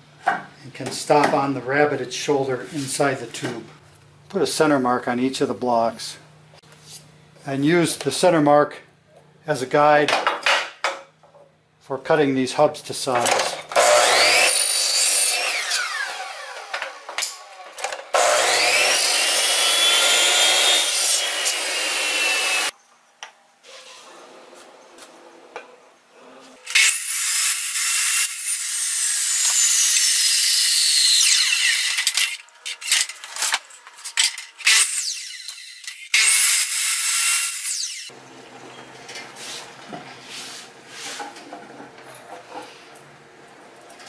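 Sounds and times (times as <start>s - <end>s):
miter saw cutting wood: 13.7s - 22.7s, 26.5s - 38.1s.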